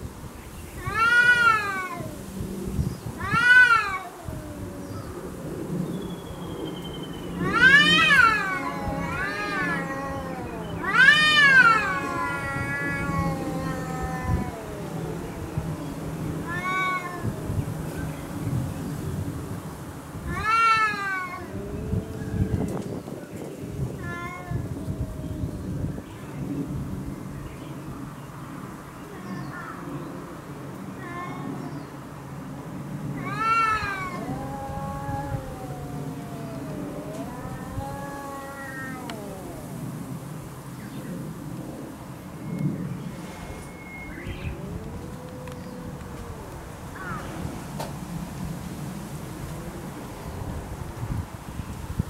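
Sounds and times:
cat yowling: 0:00.8 - 0:02.2, 0:03.2 - 0:05.5, 0:07.4 - 0:18.0, 0:20.3 - 0:22.7, 0:23.6 - 0:26.0, 0:31.0 - 0:31.6, 0:33.1 - 0:40.2, 0:44.1 - 0:47.8
low cat growl: 0:07.4 - 0:18.2, 0:20.3 - 0:26.1, 0:33.1 - 0:40.4, 0:43.2 - 0:50.8.

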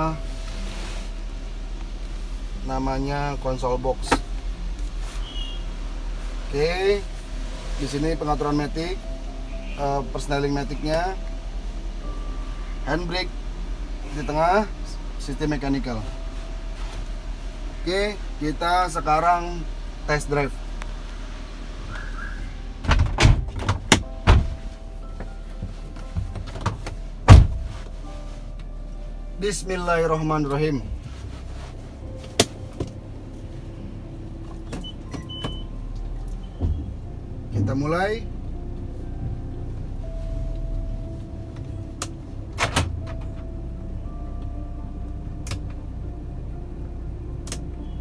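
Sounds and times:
car engine and tyre rumble: 0:00.0 - 0:48.0
knocks and clunks in car cabin: 0:22.8 - 0:27.8, 0:36.6 - 0:37.0.

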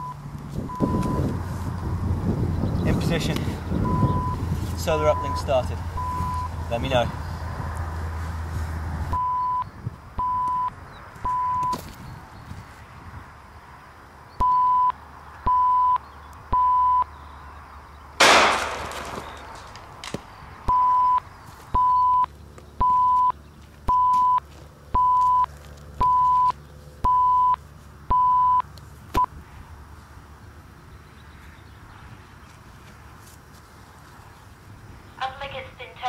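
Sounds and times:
electronic beeping: 0:00.0 - 0:01.2, 0:03.8 - 0:04.4, 0:05.1 - 0:06.5, 0:09.1 - 0:11.8, 0:14.4 - 0:14.9, 0:15.5 - 0:17.1, 0:20.7 - 0:21.2, 0:21.8 - 0:23.3, 0:23.9 - 0:24.4, 0:25.0 - 0:28.6
loud bang: 0:18.2 - 0:20.2.

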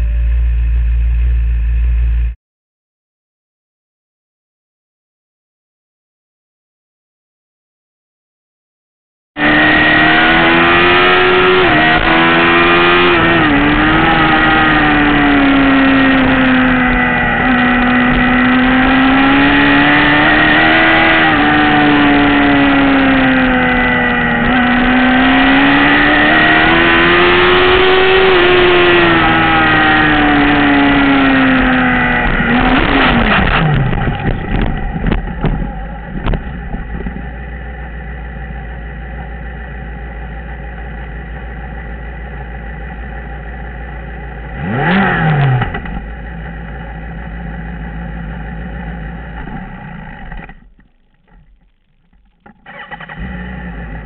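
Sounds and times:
motorcycle engine idling: 0:00.0 - 0:02.4, 0:33.9 - 0:44.6, 0:45.8 - 0:52.8
motorcycle engine revving: 0:09.4 - 0:54.0
motorcycle scraping and knocking: 0:32.3 - 0:37.3.

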